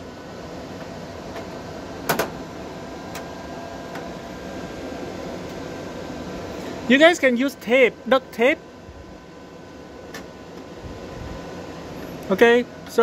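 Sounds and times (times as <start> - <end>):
fan hum: 0.0 - 13.0.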